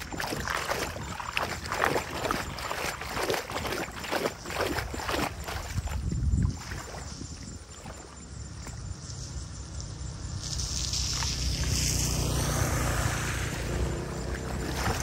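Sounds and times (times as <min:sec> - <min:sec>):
flowing water rushing: 0:00.0 - 0:05.9, 0:13.2 - 0:15.0
feet splashing through shallow water: 0:00.0 - 0:09.0, 0:10.4 - 0:15.0.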